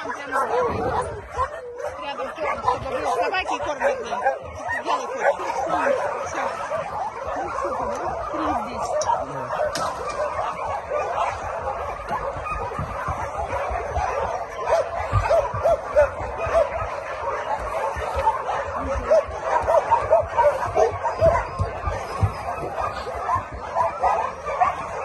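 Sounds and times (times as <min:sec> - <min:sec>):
dog yelps: 0:00.0 - 0:25.0
young dogs whining and yipping: 0:00.0 - 0:25.0.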